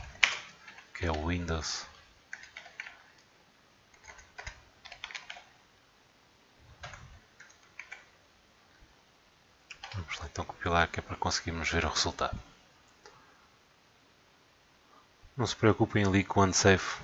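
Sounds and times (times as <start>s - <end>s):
keyboard typing: 0.0s - 1.3s, 1.9s - 3.3s, 3.9s - 5.6s, 6.8s - 8.2s, 9.7s - 10.2s.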